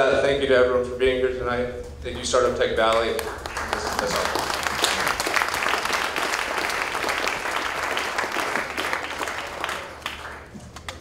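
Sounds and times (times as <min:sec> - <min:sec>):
audience applauding: 0:02.9 - 0:11.0.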